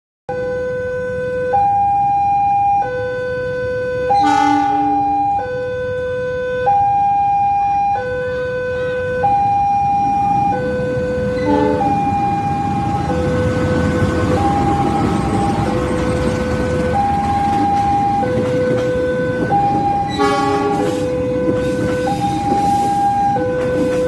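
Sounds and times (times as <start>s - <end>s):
level-crossing two-tone alarm: 0.3s - 24.0s
train horn chord: 4.1s - 5.2s, 11.2s - 12.2s, 20.1s - 21.1s
diesel locomotive rumble: 7.6s - 24.0s.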